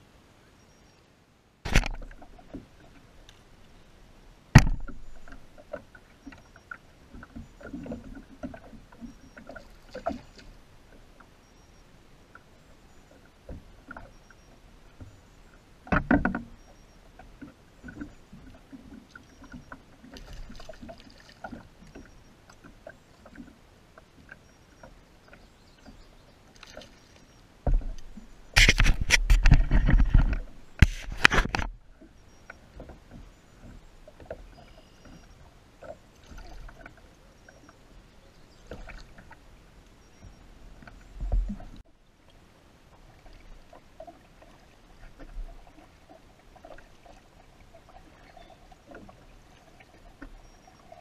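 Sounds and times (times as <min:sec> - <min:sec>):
small waves lapping against hull: 0:00.0 - 0:51.0
water splashing: 0:01.7 - 0:11.7, 0:12.3 - 0:51.0
sharp knocks on hull: 0:04.5 - 0:05.4, 0:15.9 - 0:16.5, 0:27.6 - 0:31.7.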